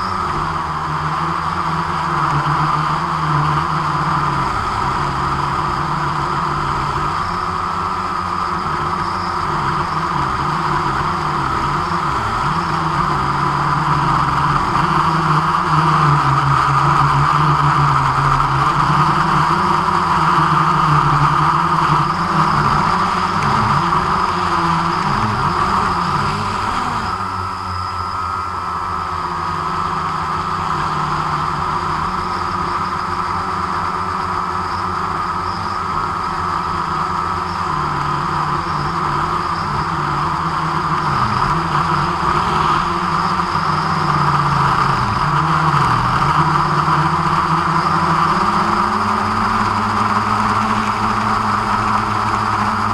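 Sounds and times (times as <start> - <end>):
drone propellers whining: 0.0 - 52.9.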